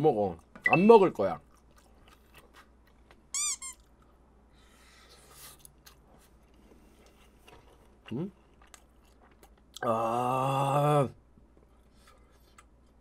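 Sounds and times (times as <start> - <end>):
high-pitched squeak: 3.4 - 3.8.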